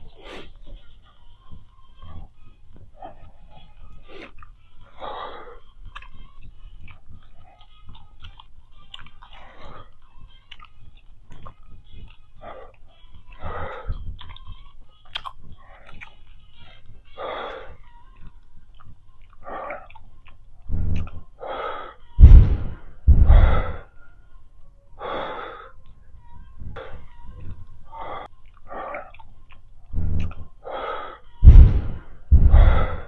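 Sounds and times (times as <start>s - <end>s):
woman breathing hard: 20.7s - 23.9s, 25.0s - 25.8s, 29.9s - 33.0s
breath blowing on microphone: 29.9s - 33.0s.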